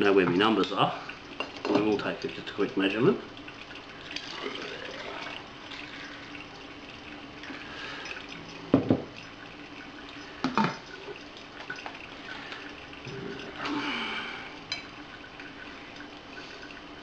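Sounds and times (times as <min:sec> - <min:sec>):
liquid trickling through funnel: 0:00.0 - 0:17.0
glass jar knocking on wooden table: 0:08.7 - 0:09.1.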